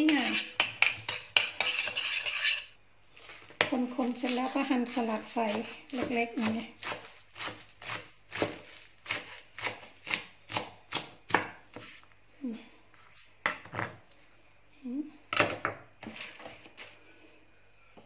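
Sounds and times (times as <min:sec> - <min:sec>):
knife chopping on wooden board: 0:05.5 - 0:11.9.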